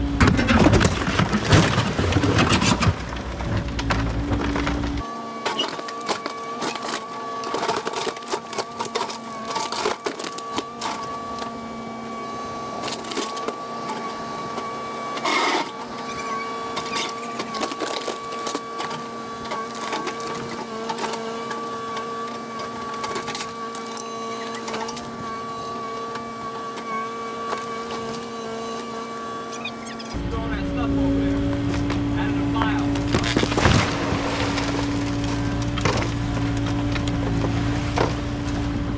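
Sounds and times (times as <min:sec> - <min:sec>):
excavator engine hum and whine: 0:00.0 - 0:38.9
bucket breaking concrete: 0:00.2 - 0:03.3.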